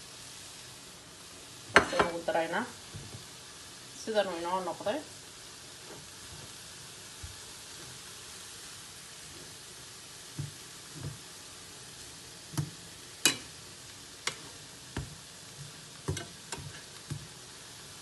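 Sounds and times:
filling sizzling in a pan: 0.0 - 18.0
utensil knocking against pan: 16.0 - 17.3.

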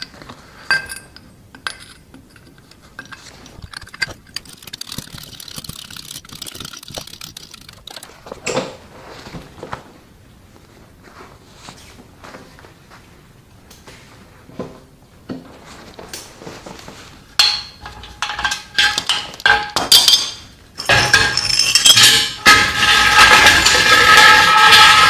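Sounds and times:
metallic rattling and scraping: 1.7 - 8.8, 17.4 - 25.0
steel tools clanking on concrete: 17.4 - 25.0.

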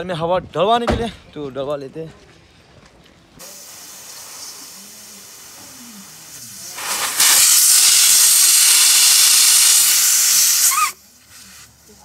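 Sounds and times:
air hissing from tyre valve: 3.4 - 12.0.

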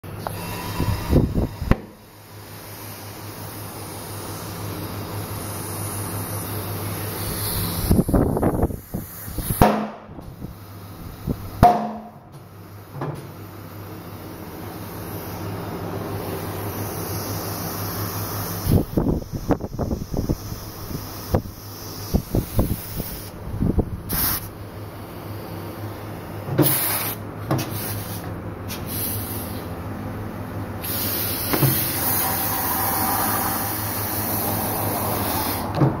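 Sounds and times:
workshop machinery humming: 0.0 - 36.0
air hissing: 0.1 - 29.8, 30.8 - 35.8
sharp bangs with metallic ring: 11.6 - 12.2
sharp knocks of tyre handling: 11.6 - 12.2.

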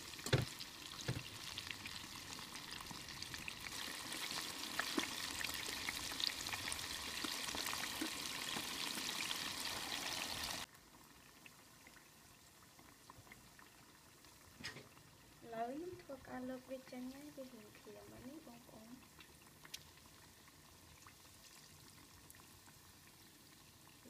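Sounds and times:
oil crackling and sizzling: 0.0 - 24.0.

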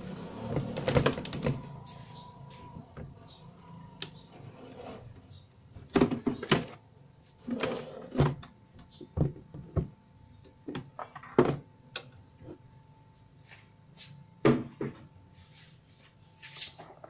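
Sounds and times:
plastic cabinet knocks and thuds: 9.1 - 10.0.

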